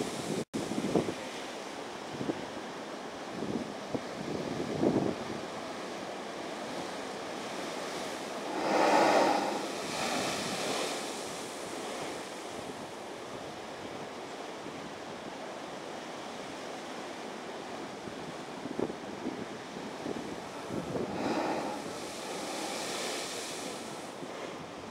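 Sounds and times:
ocean surf washing over rock: 6.6s - 12.8s, 19.5s - 24.6s
blowhole water whooshing: 8.0s - 11.7s, 20.2s - 24.1s.

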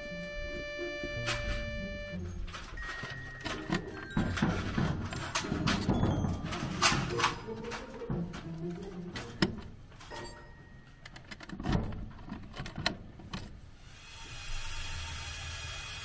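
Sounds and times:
mailbox door clicking and knocking: 2.9s - 9.8s, 11.1s - 13.5s
steady hiss: 13.7s - 16.0s.

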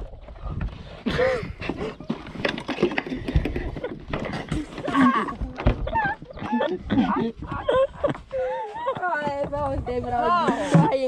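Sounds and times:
knocks and clatter: 1.6s - 6.5s.

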